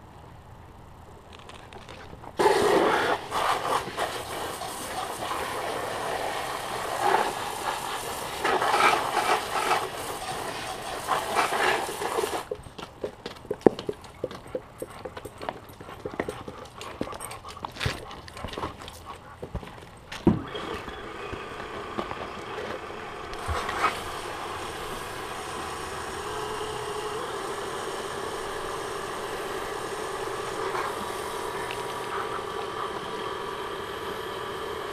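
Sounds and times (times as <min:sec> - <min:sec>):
faint steady hum: 0:00.0 - 0:34.9
hose nozzle spraying water: 0:02.4 - 0:12.5, 0:23.4 - 0:32.8.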